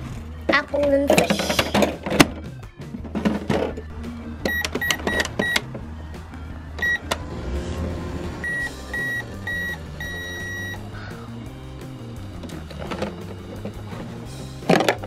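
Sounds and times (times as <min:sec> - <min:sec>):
toy microwave beeping: 0:04.4 - 0:05.7, 0:06.8 - 0:07.0, 0:08.4 - 0:10.9.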